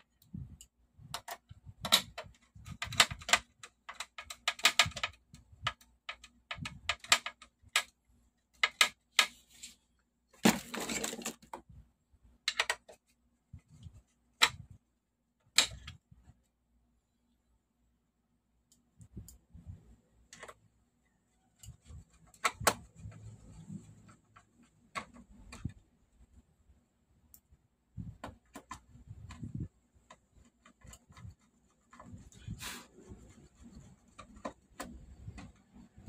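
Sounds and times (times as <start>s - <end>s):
metal and plastic scraping: 8.6s - 11.7s, 21.5s - 25.9s, 28.0s - 36.0s.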